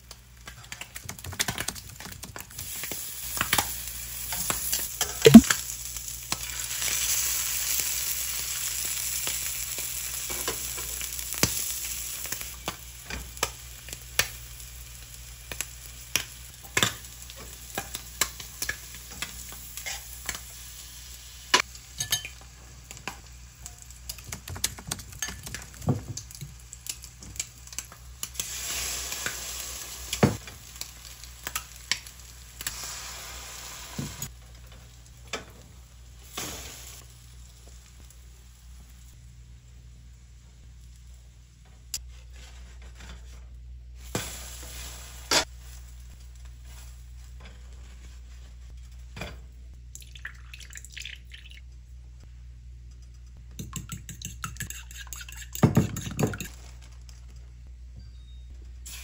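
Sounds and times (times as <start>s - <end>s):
food sizzling in oil: 1.4s - 39.2s, 44.0s - 47.0s
fork clicking against bowl: 53.0s - 56.5s.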